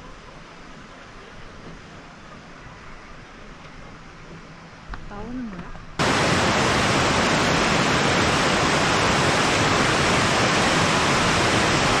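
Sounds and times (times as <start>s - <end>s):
water rushing over rocks: 6.0s - 12.0s.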